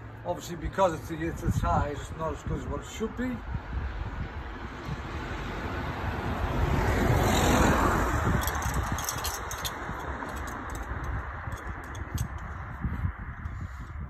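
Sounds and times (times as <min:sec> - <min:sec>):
vehicle passing by: 0:03.4 - 0:12.8.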